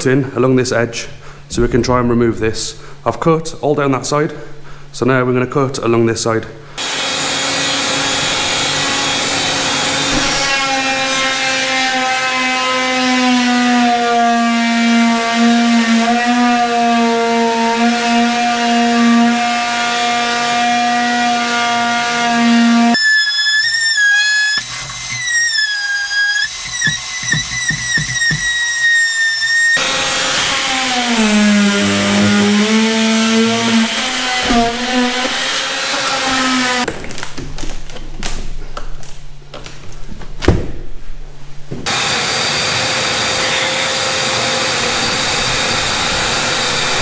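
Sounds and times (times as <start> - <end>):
oscillating multi-tool buzzing: 22.9 - 29.8
high whistling whine: 23.0 - 29.8, 42.0 - 47.0.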